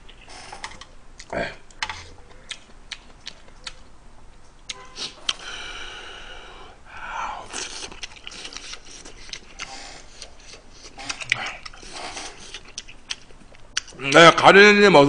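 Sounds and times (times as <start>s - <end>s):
chewing: 0.0s - 5.5s, 7.4s - 14.3s
person slurping noodles: 5.0s - 12.7s.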